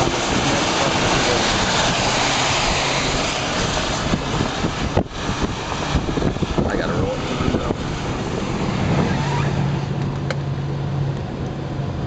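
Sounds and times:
wind and road noise inside car: 0.0 - 12.0.

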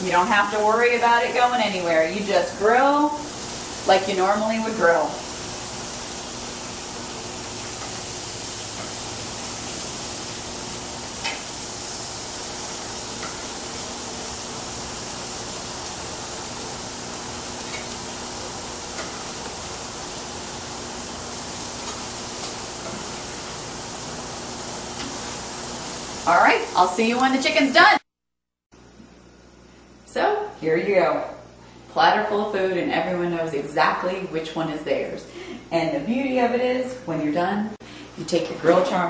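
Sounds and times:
chicken sizzling on a grill: 0.0 - 27.6.

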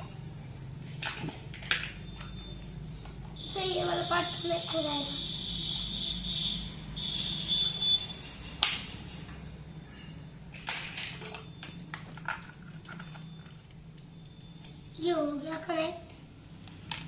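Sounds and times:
plastic parts rattling: 10.5 - 13.6.

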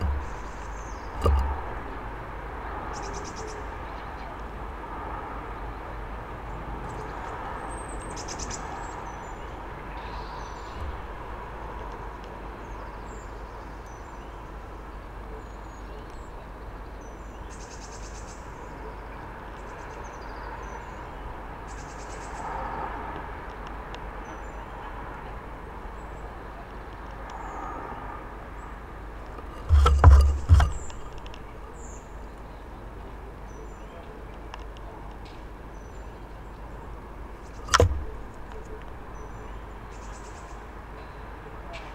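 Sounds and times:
loud low thump: 0.0 - 0.6, 29.4 - 31.2, 37.7 - 38.5
distant road traffic: 0.0 - 41.9
sharp clicks: 37.6 - 39.0.

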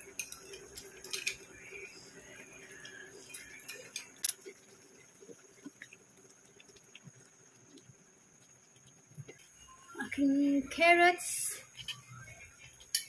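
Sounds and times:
utensils tapping pan and glass bowl: 0.1 - 1.5, 12.8 - 13.0.

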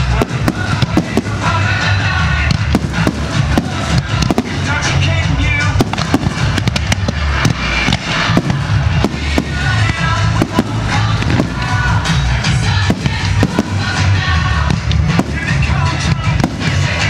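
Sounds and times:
fireworks bursting: 0.0 - 17.0
music playing: 0.0 - 17.0.

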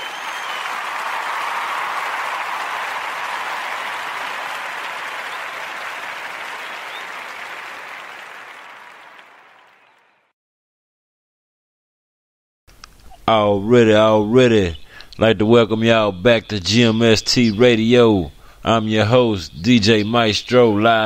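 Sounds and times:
crowd applauding: 0.0 - 10.3.

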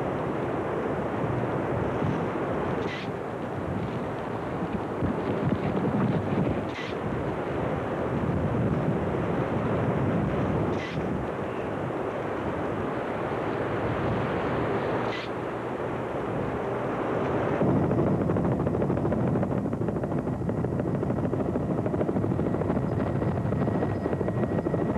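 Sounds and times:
helicopter rotor chopping: 17.6 - 24.9.

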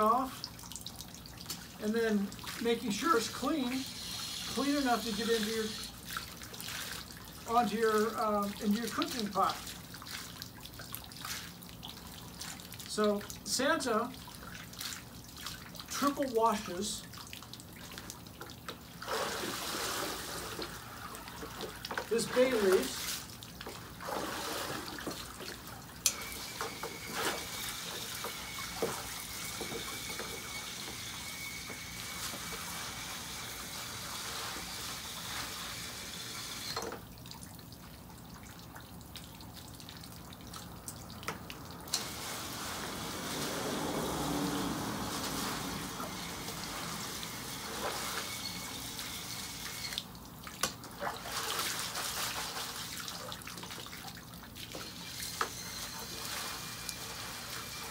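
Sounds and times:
water pouring into tub: 0.0 - 57.9
hose nozzle spraying water: 1.8 - 9.6, 19.0 - 23.3, 26.0 - 37.0, 41.8 - 50.2, 54.7 - 57.9.

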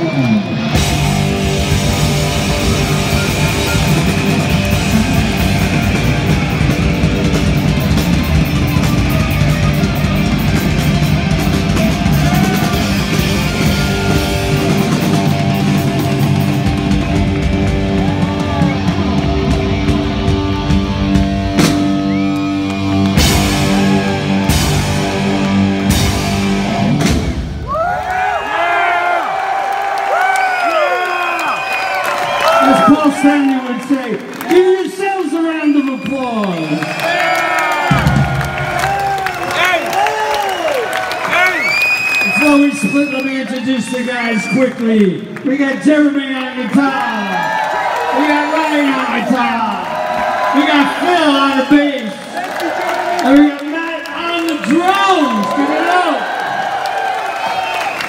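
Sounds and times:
hard rock band playing loud: 0.0 - 27.7, 37.8 - 40.0.

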